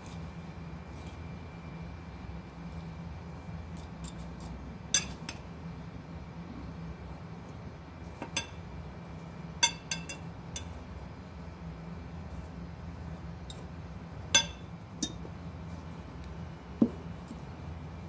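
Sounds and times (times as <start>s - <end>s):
steady low hum: 0.0s - 18.0s
forks clinking on dishes: 4.9s - 5.4s, 8.3s - 8.6s, 9.6s - 10.8s, 14.3s - 15.2s.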